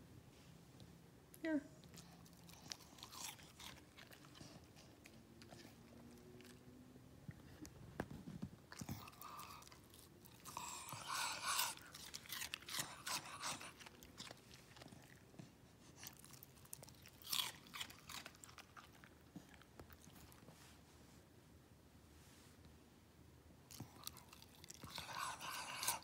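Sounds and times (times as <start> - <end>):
dog crunching cucumber: 1.8 - 6.7, 8.0 - 20.5, 23.7 - 26.0.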